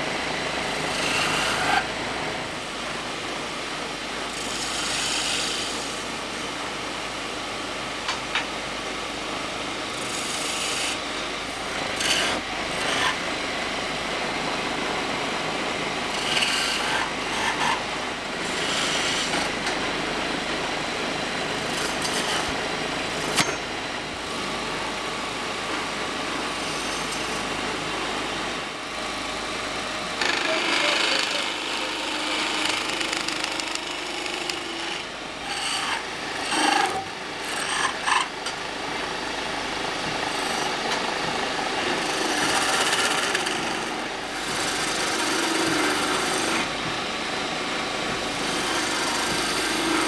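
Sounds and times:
lathe chisel cutting wood: 0:00.0 - 0:02.2, 0:04.3 - 0:06.1, 0:09.9 - 0:11.0, 0:11.6 - 0:13.3, 0:16.0 - 0:19.8, 0:21.6 - 0:23.4, 0:26.5 - 0:27.7, 0:30.1 - 0:38.3, 0:39.8 - 0:46.8, 0:48.0 - 0:50.0.

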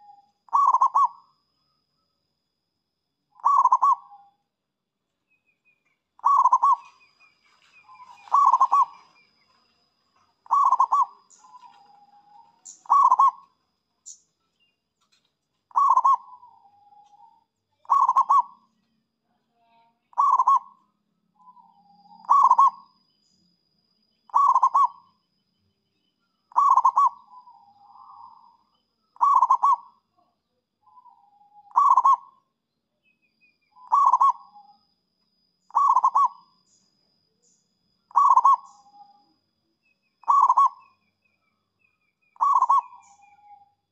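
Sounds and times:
dove cooing: 0:00.0 - 0:01.2, 0:03.4 - 0:04.2, 0:06.2 - 0:07.1, 0:07.7 - 0:09.3, 0:10.4 - 0:13.5, 0:15.7 - 0:18.6, 0:20.1 - 0:20.8, 0:22.2 - 0:22.8, 0:24.3 - 0:25.0, 0:26.5 - 0:28.6, 0:29.2 - 0:30.0, 0:30.9 - 0:32.4, 0:33.8 - 0:34.7, 0:35.7 - 0:36.5, 0:38.1 - 0:39.2, 0:40.2 - 0:40.9, 0:42.4 - 0:43.6.

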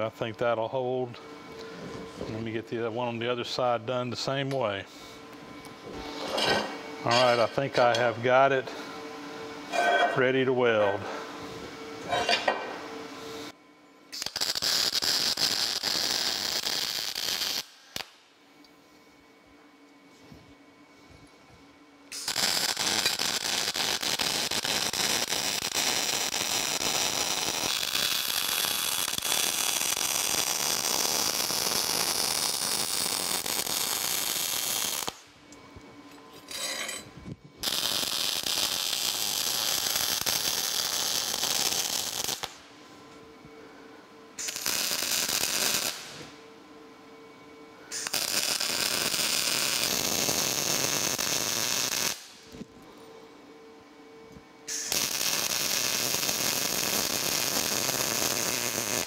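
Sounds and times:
welding arc crackling and hissing: 0:13.4 - 0:18.2, 0:22.1 - 0:35.4, 0:37.6 - 0:42.7, 0:44.4 - 0:46.4, 0:47.8 - 0:52.7, 0:54.7 - 0:59.0
faint steady hum: 0:40.2 - 0:58.7.

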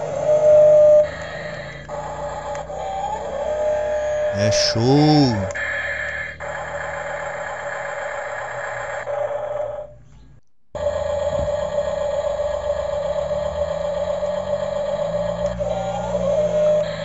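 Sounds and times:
toy truck electric motor whining: 0:00.0 - 0:04.2, 0:10.8 - 0:17.0.

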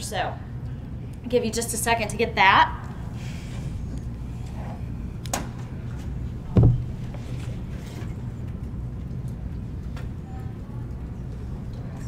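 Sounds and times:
steady low hum: 0:00.0 - 0:12.0
dull thump: 0:06.5 - 0:07.0.

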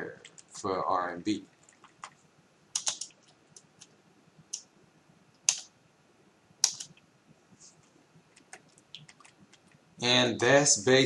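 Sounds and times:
computer control clicks: 0:06.6 - 0:07.0.

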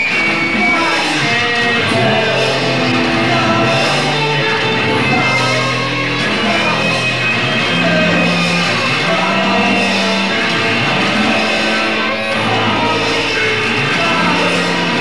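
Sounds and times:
bass line: 0:00.0 - 0:15.0
electric guitar: 0:00.0 - 0:15.0.

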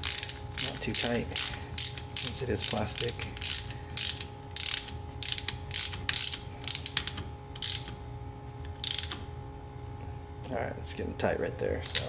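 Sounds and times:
hand ratchet clicking: 0:00.0 - 0:08.0, 0:08.8 - 0:09.2.

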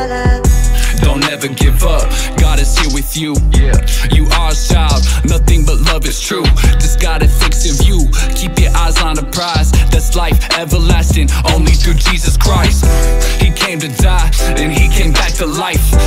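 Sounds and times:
rapping over heavy bass beat: 0:00.0 - 0:16.0.

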